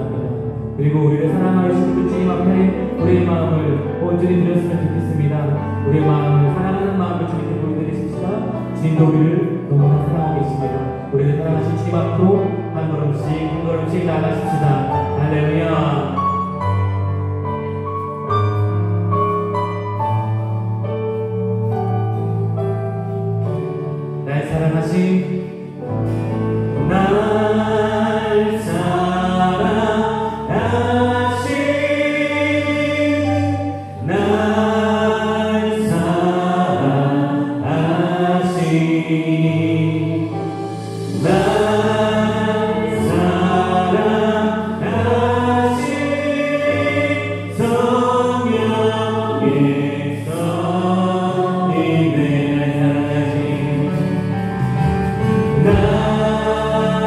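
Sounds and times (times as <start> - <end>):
keyboard and electric bass: 0.0 - 57.0
worship band playing: 0.0 - 57.0
voices singing: 26.7 - 54.6, 55.3 - 57.0.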